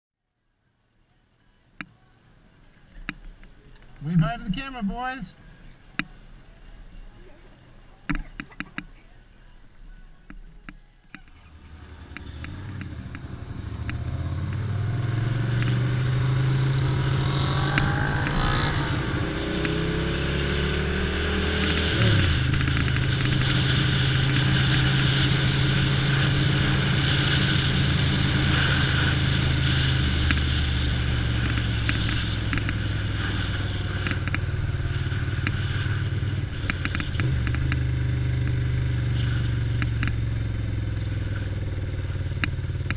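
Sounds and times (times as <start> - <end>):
motorcycle engine accelerating: 11.1 - 42.9.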